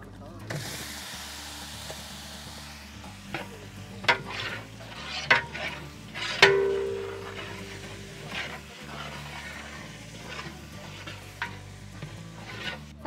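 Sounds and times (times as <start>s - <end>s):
chicken sizzling in hot oil: 0.5s - 13.0s
pot ringing: 6.2s - 9.0s
ladle knocking against metal pot: 6.4s - 8.3s.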